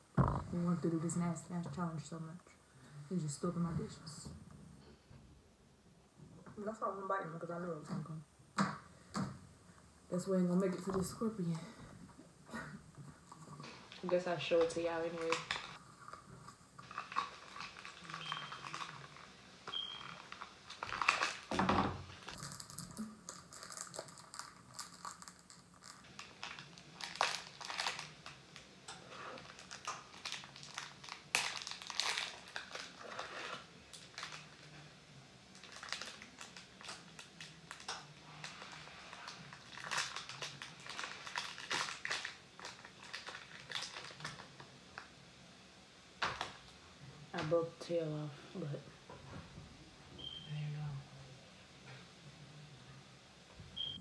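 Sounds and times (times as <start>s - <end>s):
snack packaging crinkling: 13.2s - 34.9s, 35.5s - 45.1s.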